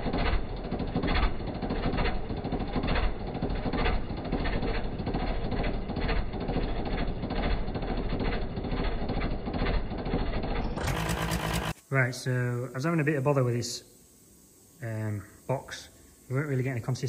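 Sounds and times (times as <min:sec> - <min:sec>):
diesel engine running: 0:00.0 - 0:11.8.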